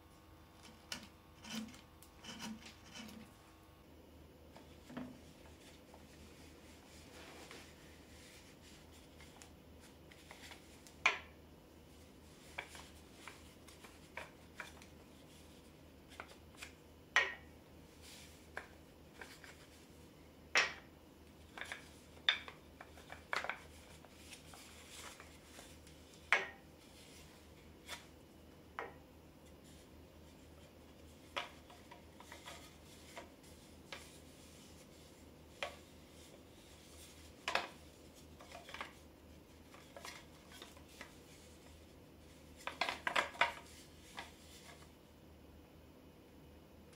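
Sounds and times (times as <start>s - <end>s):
soft rubbing: 4.5s - 11.0s, 17.8s - 20.1s, 22.8s - 28.2s, 29.3s - 42.7s.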